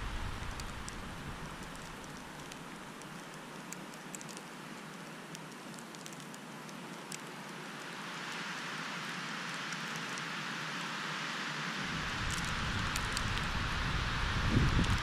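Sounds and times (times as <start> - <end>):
wind and blowing snow hiss: 0.0 - 15.0
faint ticks: 0.4 - 7.9.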